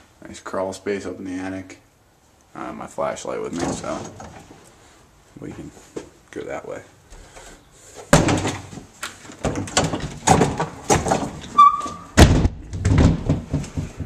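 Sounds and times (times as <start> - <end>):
loud thumps and bangs: 8.1 - 8.7, 12.2 - 14.0
high squeak: 11.5 - 12.1.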